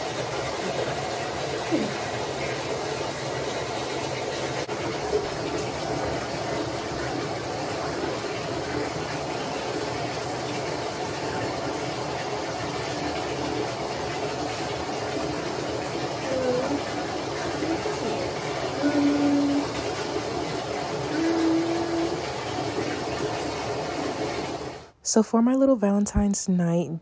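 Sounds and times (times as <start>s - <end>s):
water running into bathtub: 0.0s - 25.0s.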